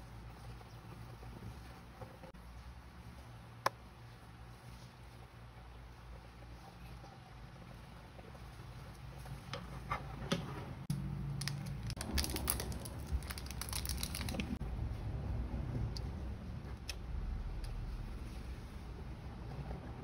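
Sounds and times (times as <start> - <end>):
plastic crinkling: 11.3 - 14.6.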